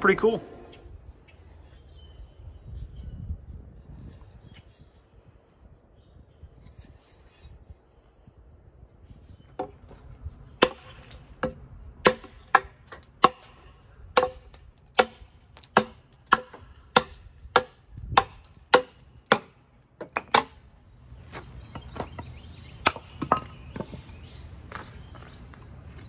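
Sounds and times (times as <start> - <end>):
axe chopping wood: 10.6 - 20.7, 22.8 - 23.9.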